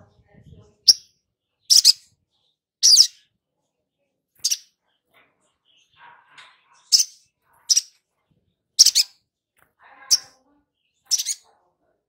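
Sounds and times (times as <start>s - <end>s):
bird chirping: 0.1s - 11.6s
faint bird twittering: 0.8s - 3.4s, 10.0s - 11.4s.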